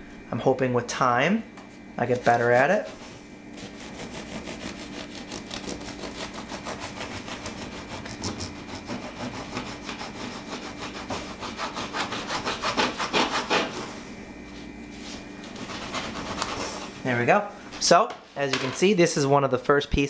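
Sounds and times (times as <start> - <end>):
bread knife sawing through crusty loaf: 2.2 - 13.8, 15.6 - 16.8.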